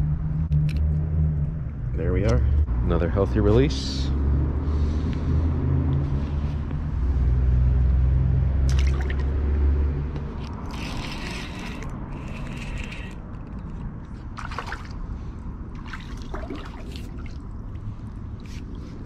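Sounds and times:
water splashing: 8.6 - 9.5, 14.4 - 15.1, 15.7 - 17.8.

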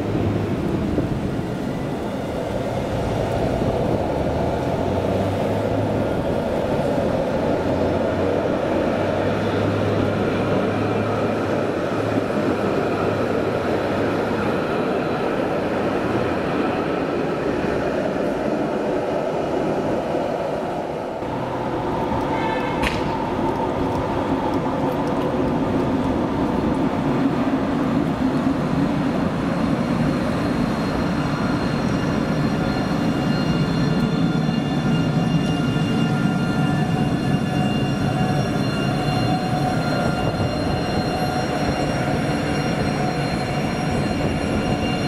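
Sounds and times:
tram wheels rumbling on rails: 0.0 - 45.0.

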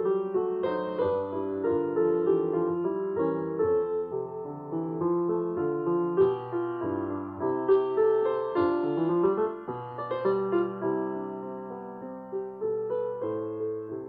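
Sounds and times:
background piano music: 0.0 - 14.0.

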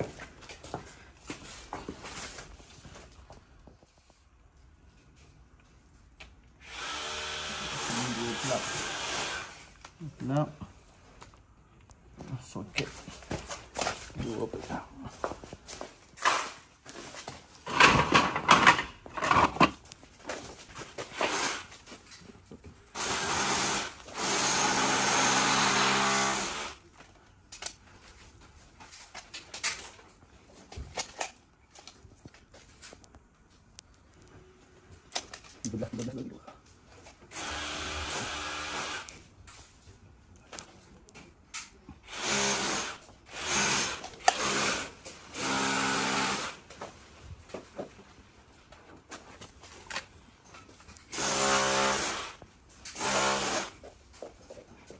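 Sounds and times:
small power tool motor: 6.6 - 9.7, 23.0 - 26.8, 37.3 - 39.2, 42.1 - 46.6, 51.1 - 53.8.

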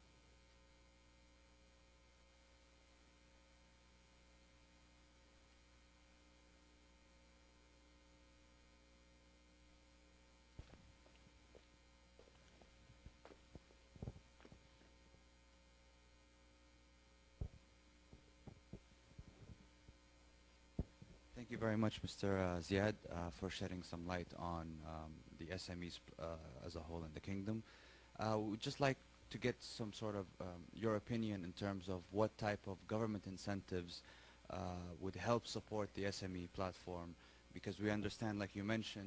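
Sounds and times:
low electrical hum: 0.0 - 39.0
faint knocks: 17.4 - 19.6.

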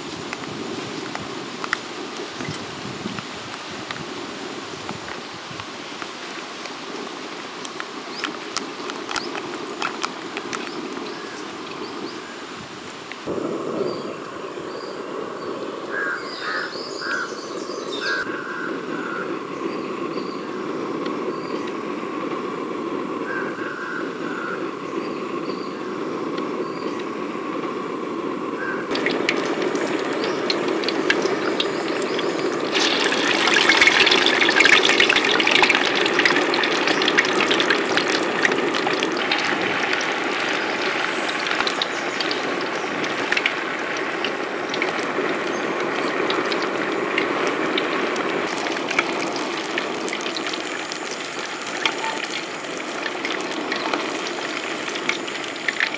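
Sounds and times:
food deep-frying in oil: 0.0 - 13.3, 28.6 - 55.9
birds chirping: 8.0 - 12.5, 13.8 - 21.7, 28.6 - 54.9
steady low rush: 13.2 - 32.8.

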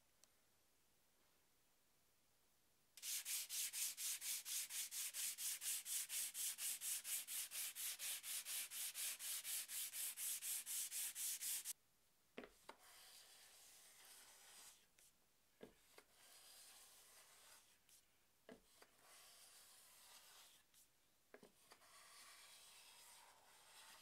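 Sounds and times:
sanding block on wood: 3.0 - 11.8, 19.0 - 20.6, 21.8 - 24.0.

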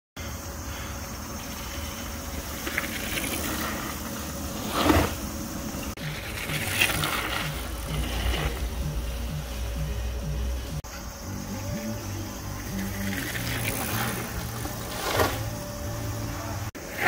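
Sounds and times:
bike rumbling over trail: 0.4 - 17.0
loud scrape: 2.6 - 5.4, 6.0 - 9.0, 12.9 - 15.6.

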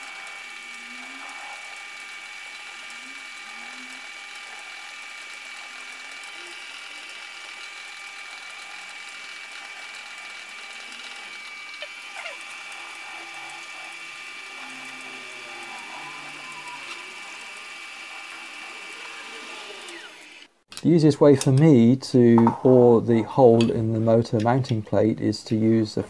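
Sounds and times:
lathe gears whirring: 0.0 - 20.6.

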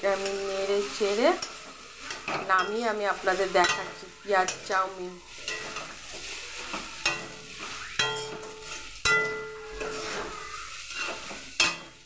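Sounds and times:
oil sizzling: 0.0 - 12.0
spatula tossing noodles: 0.0 - 12.0
spatula clanking on pan: 1.3 - 12.0.

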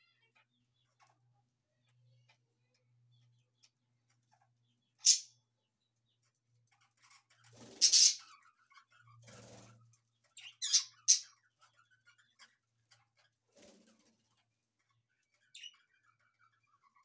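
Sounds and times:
faint bird chatter: 0.0 - 17.0
budgerigars chirping: 4.9 - 5.4, 7.0 - 13.3.

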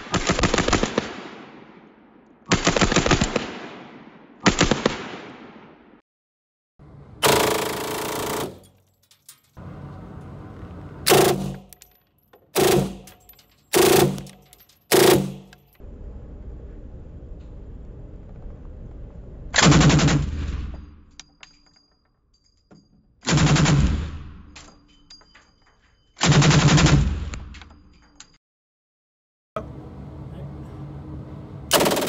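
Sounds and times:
machine pistol bursts echoing: 11.1 - 11.8, 12.5 - 15.8, 31.7 - 32.0.

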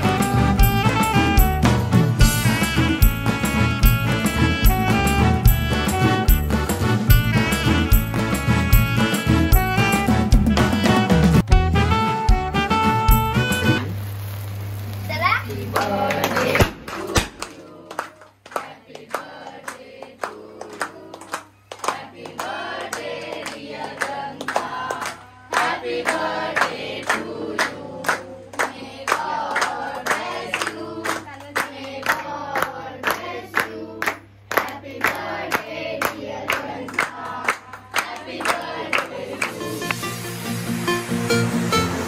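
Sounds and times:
group singing birthday song: 0.0 - 1.2, 15.5 - 42.0
people clapping in time: 4.0 - 8.6, 15.7 - 40.0.

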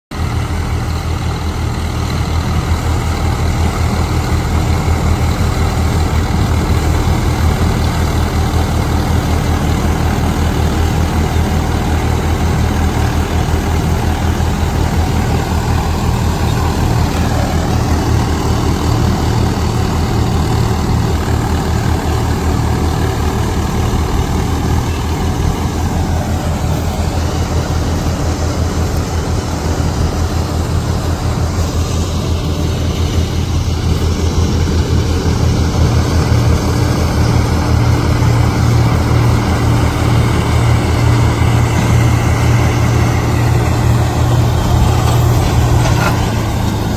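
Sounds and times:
reaper machinery running: 0.1 - 46.9
tractor diesel engine under load: 0.1 - 46.9.

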